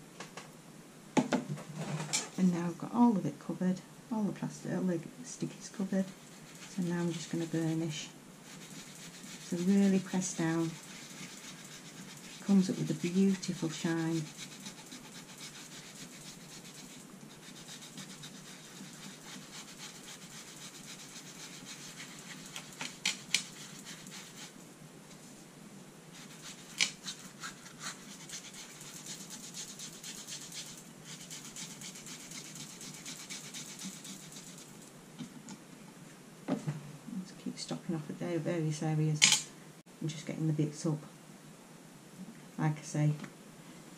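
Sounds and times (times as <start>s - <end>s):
hand rubbing and brushing: 5.4s - 25.5s, 26.1s - 35.4s.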